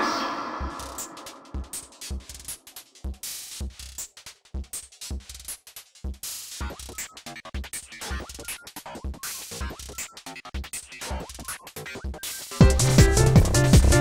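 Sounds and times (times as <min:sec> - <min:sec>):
stepped synth notes: 0:00.0 - 0:05.5
electronic music with drum-machine beat: 0:00.0 - 0:14.0.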